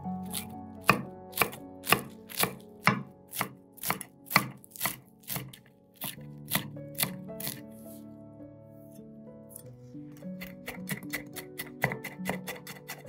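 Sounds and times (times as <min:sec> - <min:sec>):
knife chopping on cutting board: 0:00.3 - 0:07.6, 0:10.4 - 0:13.0.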